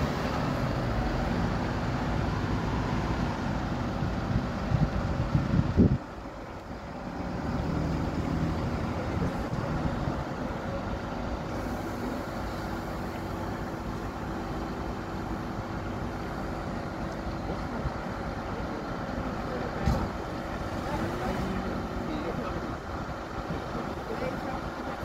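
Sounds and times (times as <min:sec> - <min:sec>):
road vehicle rumble: 0:00.0 - 0:25.0.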